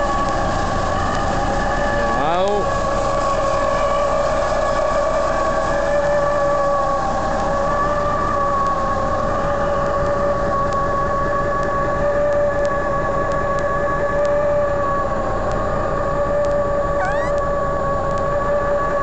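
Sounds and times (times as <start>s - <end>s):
diesel truck engine idling: 0.0s - 18.4s
high whine: 0.0s - 19.0s
rising chirp: 17.0s - 17.4s.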